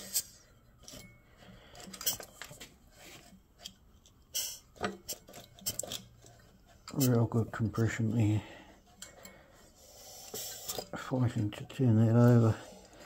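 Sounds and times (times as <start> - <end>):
light metallic clicks and clunks: 0.8 - 9.5.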